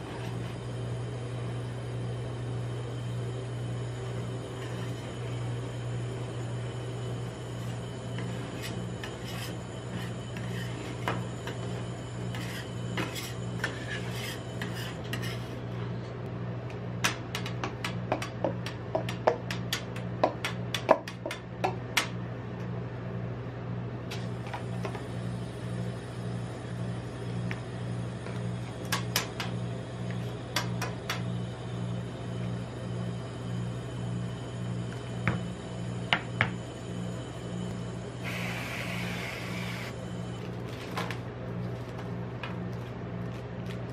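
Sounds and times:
low hum: 0.0 - 16.4
spatulas scraping metal plate: 7.6 - 15.6.

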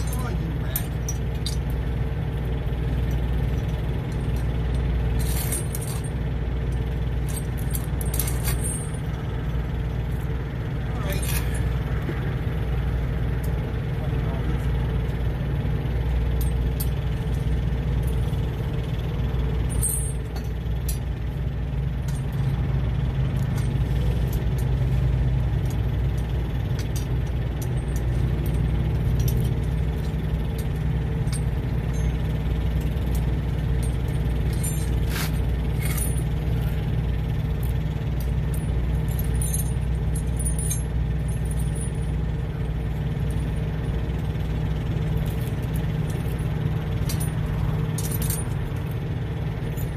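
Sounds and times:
truck engine idling: 0.0 - 49.9
snow chains clinking: 3.0 - 9.3, 26.1 - 49.9.

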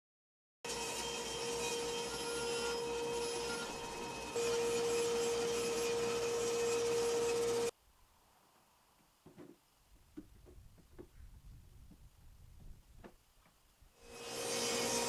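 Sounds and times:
table saw cutting panel: 0.7 - 7.7, 14.0 - 15.0.

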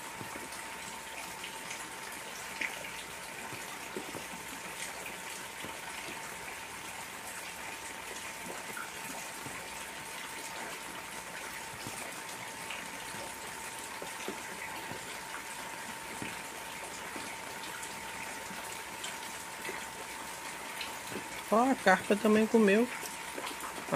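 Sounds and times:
heavy rain on pond water: 0.0 - 23.9.

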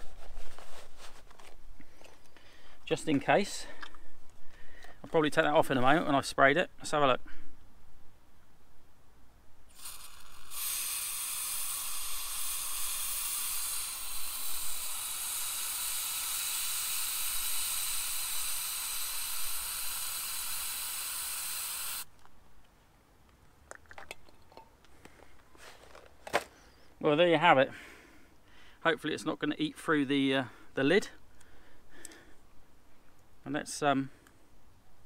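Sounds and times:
aerosol can spraying hiss: 9.8 - 22.1.

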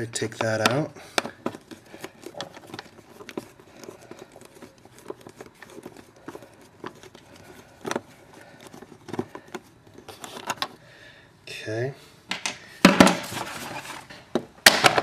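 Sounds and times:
screwdriver clicking and scraping: 0.3 - 10.8.

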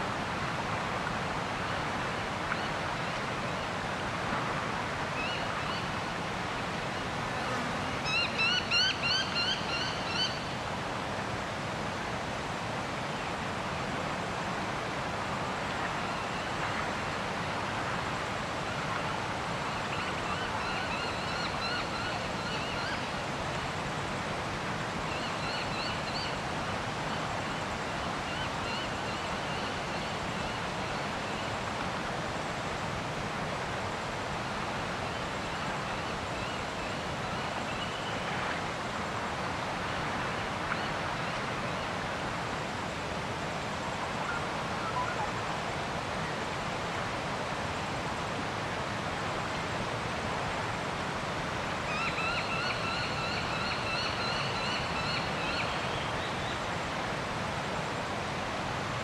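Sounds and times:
water: 0.0 - 59.0
wind: 0.0 - 59.0
faint bird calls: 7.4 - 10.5, 43.9 - 45.5.

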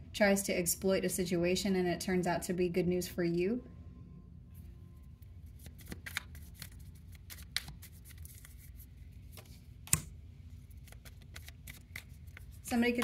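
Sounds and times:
cards being shuffled: 5.4 - 13.0.

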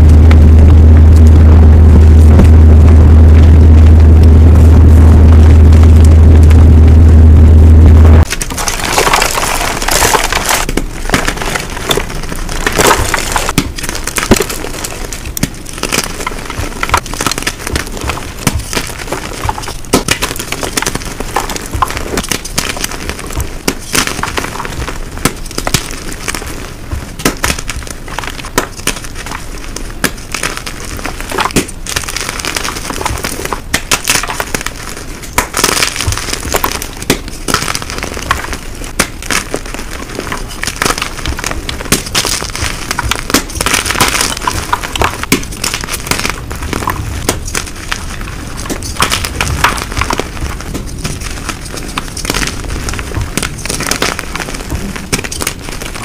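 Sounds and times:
loud low drone: 0.0 - 8.3
chalk blocks crunching: 8.2 - 56.0.

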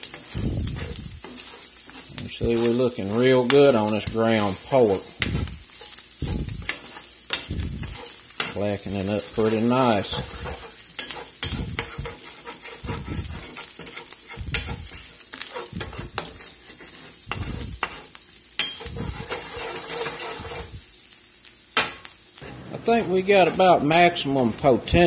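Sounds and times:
metal spoon scraping pan: 0.0 - 20.8, 21.8 - 25.0
meat sizzling in a skillet: 0.0 - 25.0
spoon clinking on pan: 18.6 - 18.9.

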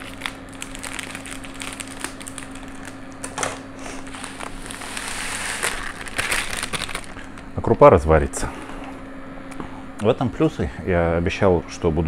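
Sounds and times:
plastic bag crinkling: 0.0 - 7.5
steady low hum: 0.0 - 12.0.

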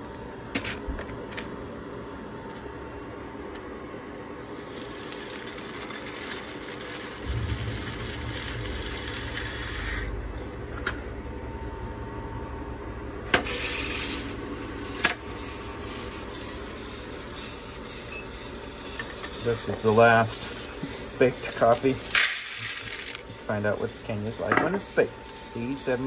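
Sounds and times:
low machine hum: 0.0 - 26.0
coffee beans pouring into hopper: 4.4 - 10.2, 13.3 - 26.0.

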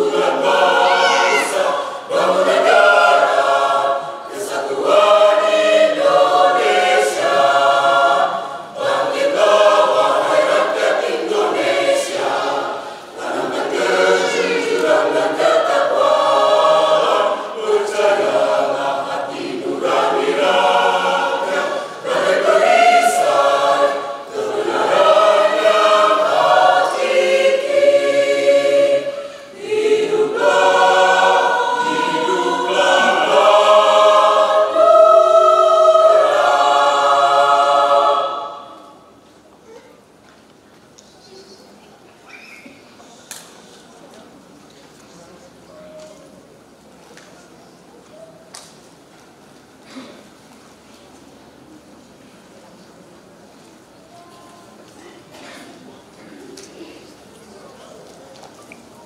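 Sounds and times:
mixed choir singing in parts: 0.0 - 39.3.

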